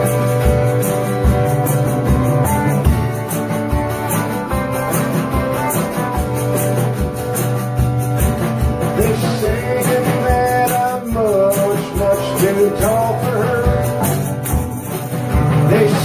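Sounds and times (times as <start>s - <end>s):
live rock band playing: 0.0s - 16.0s
man singing: 8.9s - 14.4s, 15.5s - 16.0s.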